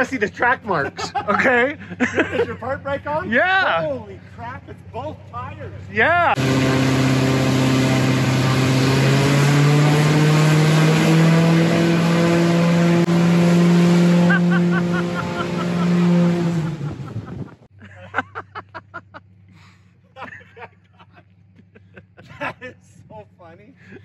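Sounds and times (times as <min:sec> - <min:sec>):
plane engine and propeller: 0:00.0 - 0:17.7.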